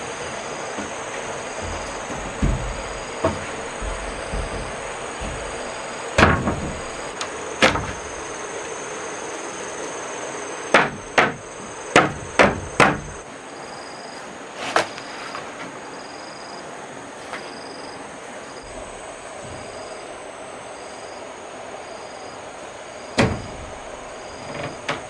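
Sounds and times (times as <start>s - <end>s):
insects chirring: 0.0s - 25.0s
knocks on wooden planks: 0.2s - 8.4s, 10.7s - 13.2s, 23.2s - 25.0s.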